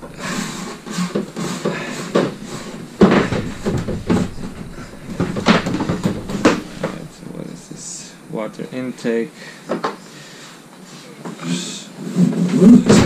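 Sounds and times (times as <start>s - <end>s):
hoses knocking and scraping wood: 0.0s - 7.9s, 12.5s - 13.0s.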